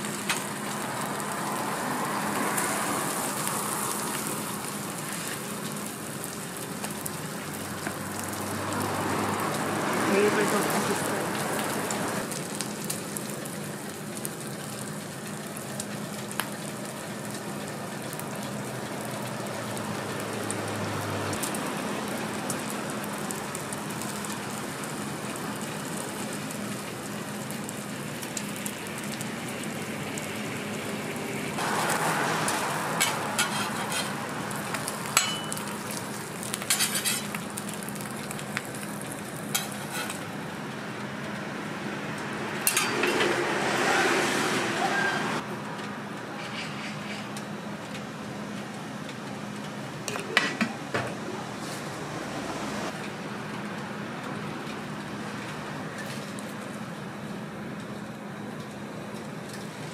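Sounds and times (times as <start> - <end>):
food sizzling on a griddle: 0.0 - 45.2, 46.2 - 47.9
metal spatulas scraping griddle: 33.0 - 34.2, 36.7 - 37.4, 39.6 - 40.2, 46.4 - 47.4.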